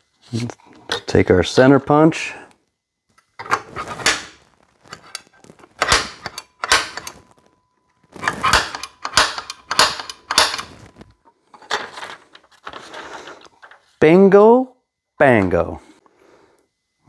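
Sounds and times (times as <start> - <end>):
center punch clicking on steel: 5.8 - 7.1, 8.5 - 10.7.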